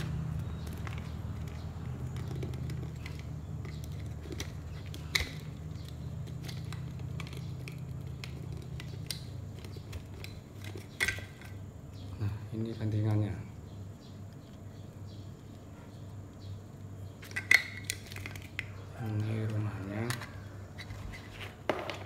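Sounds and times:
plastic clicks and scrapes: 0:00.0 - 0:11.6
steady low hum: 0:00.0 - 0:22.0.

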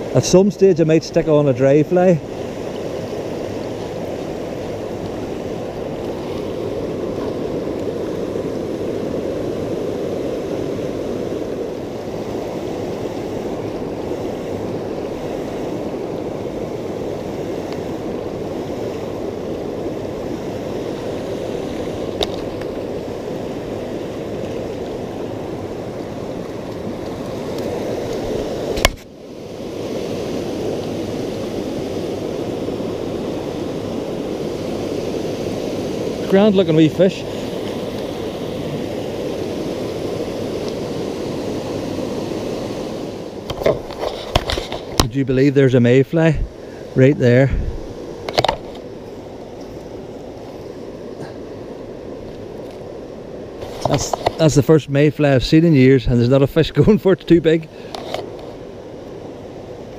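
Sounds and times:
river water rushing: 0:00.0 - 0:59.9.

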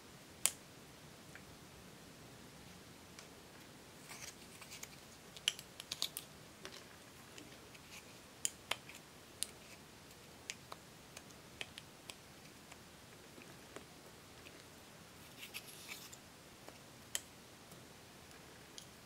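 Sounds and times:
pick scraping powder: 0:15.2 - 0:16.2.

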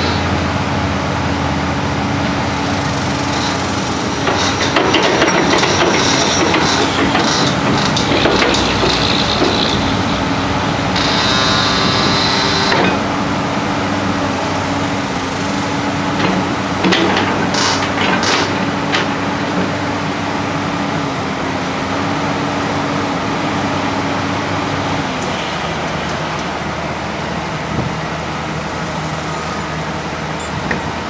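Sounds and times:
excavator diesel engine running: 0:00.0 - 0:31.0
machine knocks and scrapes: 0:03.3 - 0:13.0.

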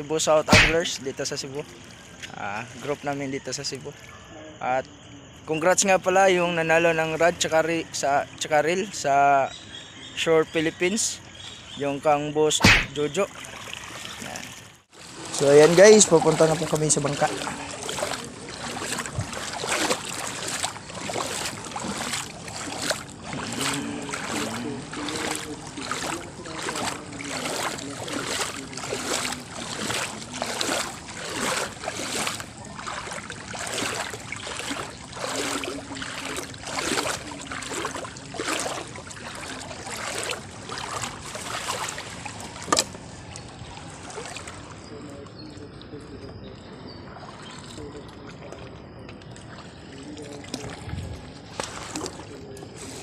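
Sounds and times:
water splashing rhythmically: 0:00.0 - 0:53.0
sharp knock: 0:00.5 - 0:00.8, 0:12.6 - 0:13.0.

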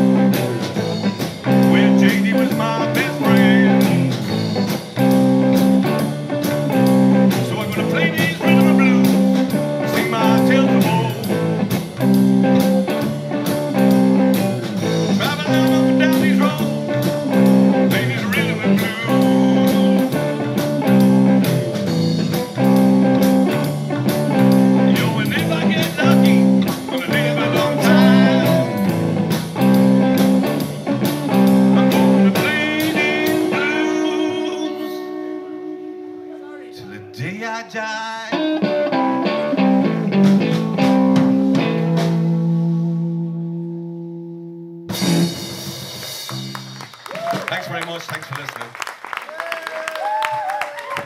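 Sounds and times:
electric guitar chords: 0:00.0 - 0:47.8
bass guitar: 0:00.0 - 0:48.4
blues-rock band playing: 0:00.0 - 0:48.4
drum kit and cymbal hits: 0:44.9 - 0:47.5.

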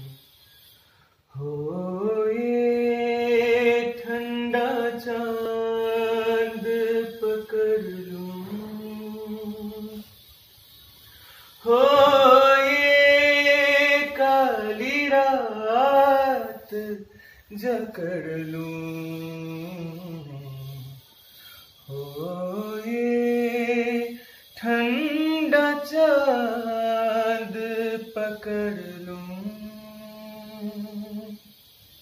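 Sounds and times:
man singing long notes: 0:01.3 - 0:10.0, 0:11.6 - 0:21.0.

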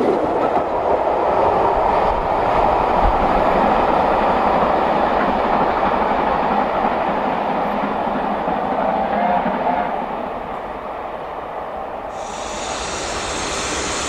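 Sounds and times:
train wheels clattering over rails: 0:00.0 - 0:08.8.

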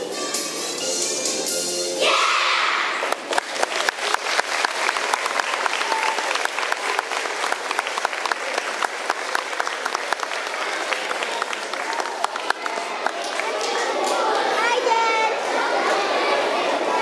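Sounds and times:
children shouting: 0:02.0 - 0:03.1, 0:10.7 - 0:17.0
audience applauding: 0:03.0 - 0:14.4.

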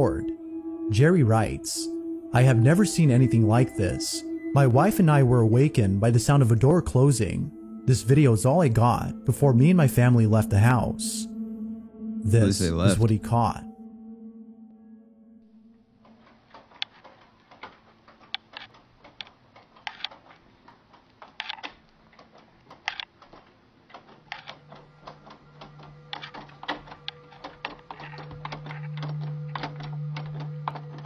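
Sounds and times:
doorknob latch rattling: 0:16.0 - 0:31.0.

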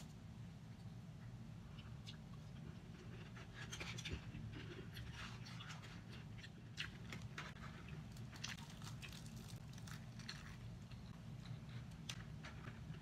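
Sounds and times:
low steady hum: 0:00.0 - 0:13.0
crispy fried chicken crackling: 0:05.0 - 0:13.0.

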